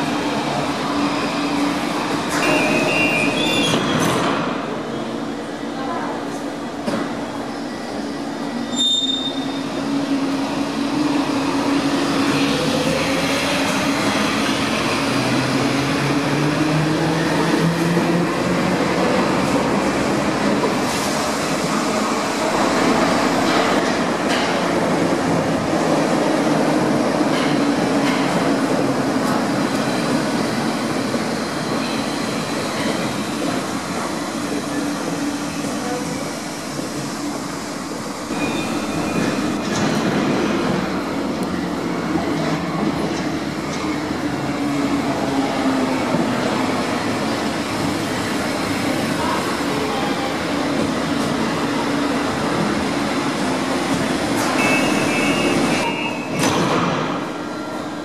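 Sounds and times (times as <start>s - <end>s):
wheel squeal: 8.6s - 9.7s, 38.3s - 39.4s
wheels rumbling on rail: 9.1s - 58.0s
short high beep: 54.6s - 56.4s.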